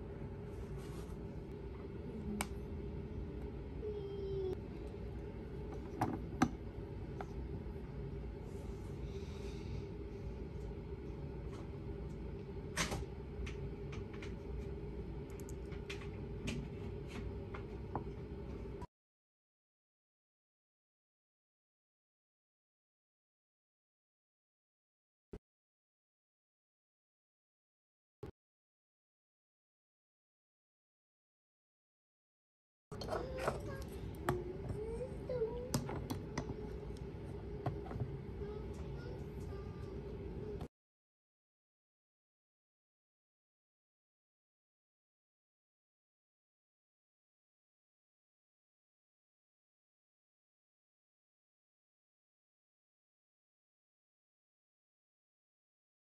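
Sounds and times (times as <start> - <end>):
steady low hum: 0.0 - 18.9, 32.9 - 40.7.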